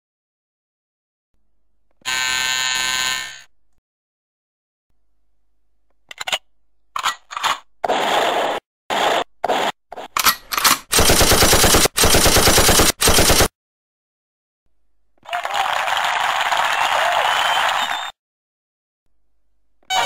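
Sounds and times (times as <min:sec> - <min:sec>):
machine-gun fire bursts: 0:10.8 - 0:13.5.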